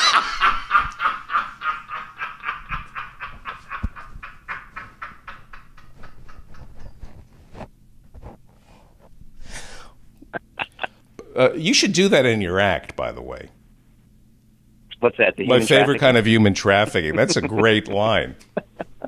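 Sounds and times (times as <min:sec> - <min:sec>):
person laughing hard: 0:00.0 - 0:06.6, 0:10.2 - 0:11.0, 0:16.9 - 0:19.0.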